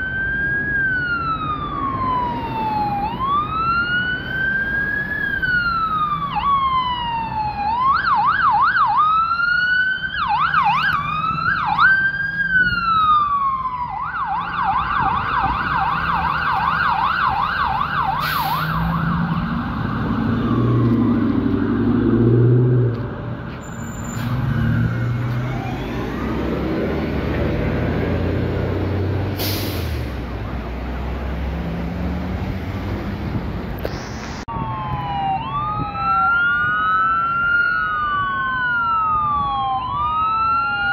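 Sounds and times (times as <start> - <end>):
ambulance siren wail and yelp: 0.0 - 29.0, 34.4 - 40.9
tyres on the road: 0.0 - 40.9
bus engine rumbling: 17.8 - 34.5.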